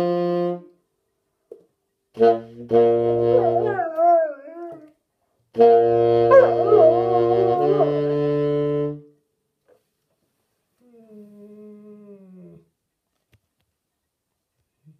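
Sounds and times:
wind instrument long notes: 0.0 - 0.8, 2.1 - 4.9, 5.5 - 9.2
dog howling: 3.3 - 4.9, 6.3 - 8.0.

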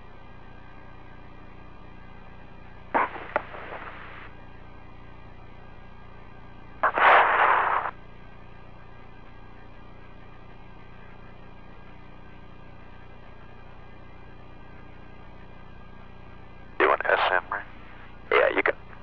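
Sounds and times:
radio channel low hum: 2.6 - 4.6, 6.6 - 19.0
radio static bursts: 3.0 - 4.3, 6.8 - 8.0, 16.8 - 18.7.

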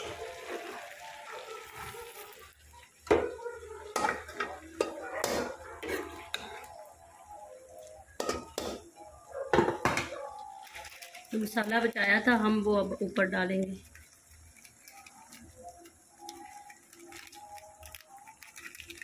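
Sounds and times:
metal spoon scraping metal pot: 4.0 - 6.7.

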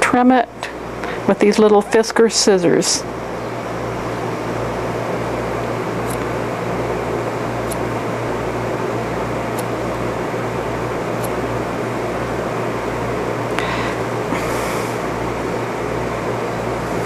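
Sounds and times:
fan droning: 0.0 - 17.0
scissors snipping fur: 6.0 - 6.3, 9.5 - 9.8, 11.2 - 11.4.

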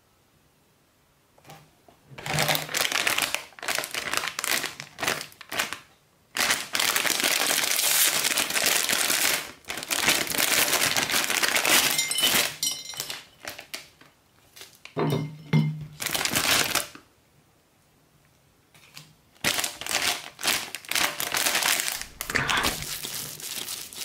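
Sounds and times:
plastic packet crinkling: 2.2 - 14.9, 16.0 - 17.0, 18.8 - 24.0.

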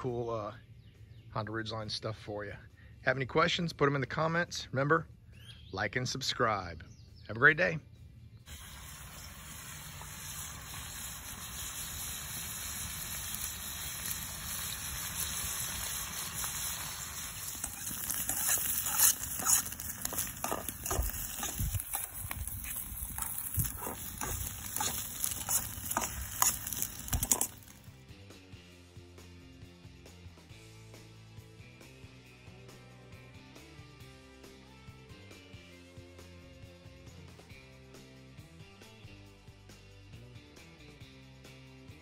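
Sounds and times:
eggs sizzling in a pan: 8.5 - 27.9
pops and crackles: 9.9 - 27.9.

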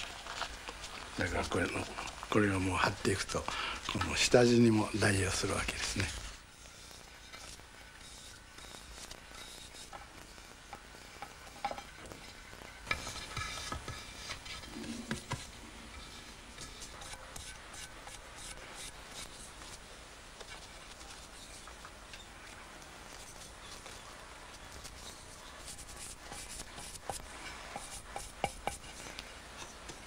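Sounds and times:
spatula scraping paste: 5.8 - 19.8, 24.6 - 30.0.

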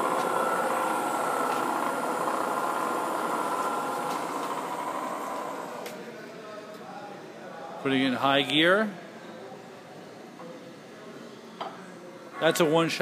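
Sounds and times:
mill spindle running with high whine: 0.0 - 6.2.

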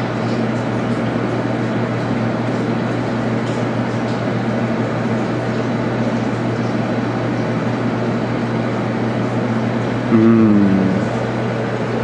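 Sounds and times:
low two-pitch humming tone: 10.1 - 11.2
steady rumbling hum: 10.1 - 11.4.

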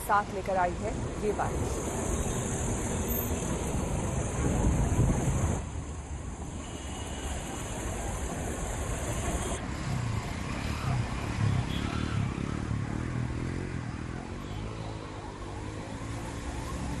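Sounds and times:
steady traffic noise: 0.0 - 17.0
vehicle engines running and revving: 8.2 - 17.0.

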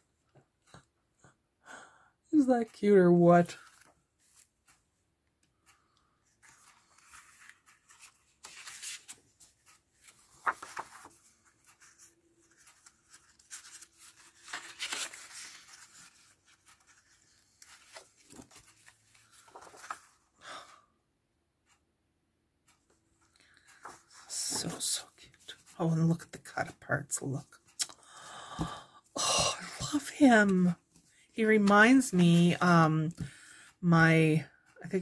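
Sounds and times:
paper rustling: 6.4 - 20.3, 23.6 - 25.8.

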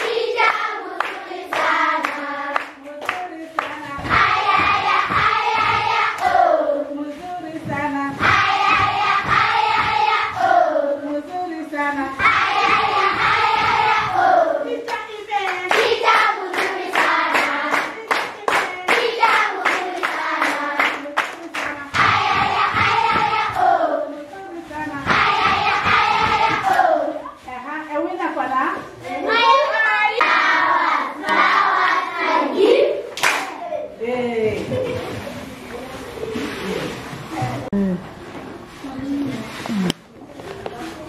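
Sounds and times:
hands clapping: 0.0 - 5.3, 14.8 - 23.6, 33.1 - 33.6
children singing in chorus: 3.9 - 6.9, 8.1 - 11.1, 12.2 - 24.2, 29.2 - 33.1.

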